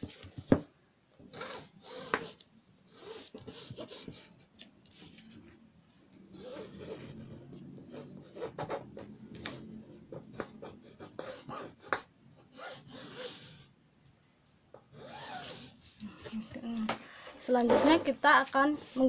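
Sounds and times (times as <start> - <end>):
pencil scratching on fabric: 1.3 - 5.4, 6.3 - 13.7, 14.9 - 16.0
pencil taps: 8.6 - 10.7, 11.8 - 12.1.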